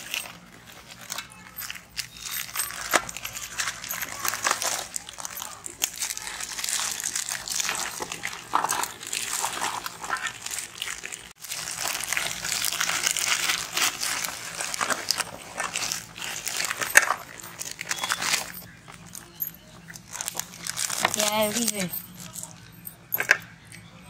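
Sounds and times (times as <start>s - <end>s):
plastic wrappers tearing and crinkling: 0.0s - 22.6s.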